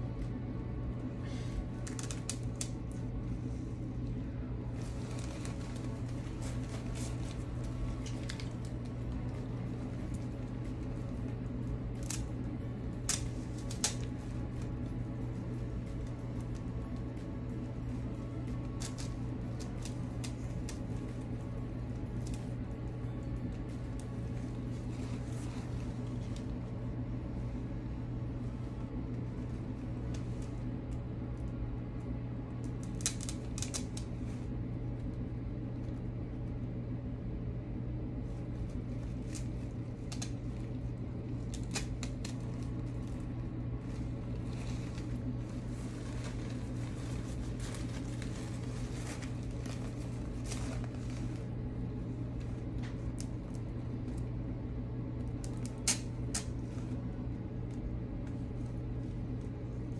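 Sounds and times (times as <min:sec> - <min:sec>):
steady low hum: 0:00.0 - 0:59.9
artificial flowers rustling: 0:01.0 - 0:31.5, 0:38.2 - 0:54.2.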